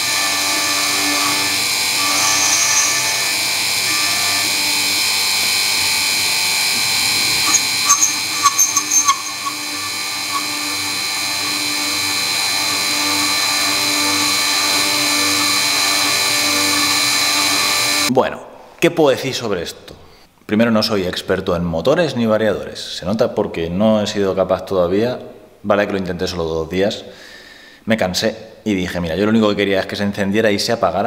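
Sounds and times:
cutter squealing: 0:00.0 - 0:18.1
milling machine cutting metal: 0:00.0 - 0:18.1.

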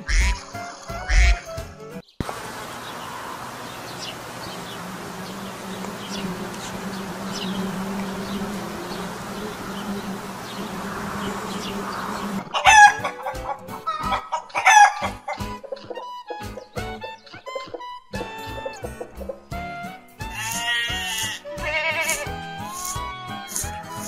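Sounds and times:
bees buzzing: 0:02.2 - 0:13.4, 0:20.2 - 0:24.0
rooster crowing: 0:08.6 - 0:15.2.

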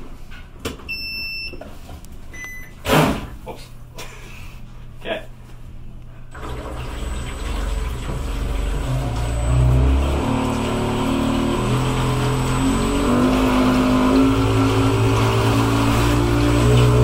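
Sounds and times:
electric motor hum: 0:06.4 - 0:17.0
water churning from jet: 0:06.4 - 0:17.0.

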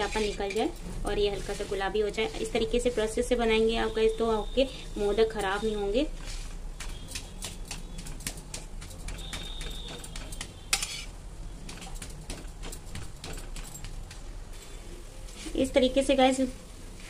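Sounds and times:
metal spatula scraping a pan: 0:00.0 - 0:03.9, 0:09.0 - 0:12.0.

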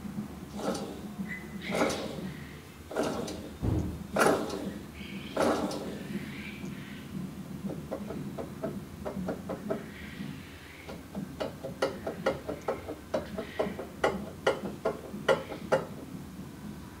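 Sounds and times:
wheel bearing grinding: 0:00.5 - 0:06.3.

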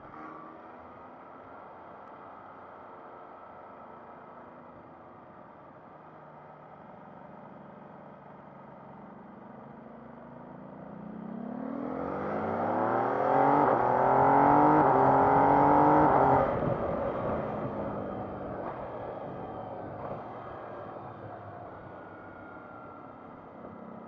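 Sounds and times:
motorcycle engine at full throttle: 0:07.6 - 0:24.0.

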